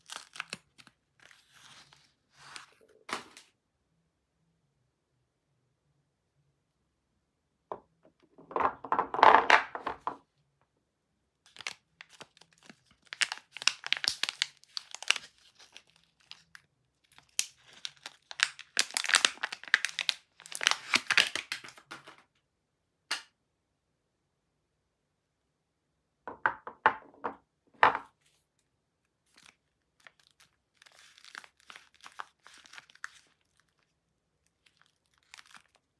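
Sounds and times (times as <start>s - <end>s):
plastic wrapper crinkling and tearing: 0.0s - 3.4s, 11.5s - 22.0s, 29.2s - 35.9s.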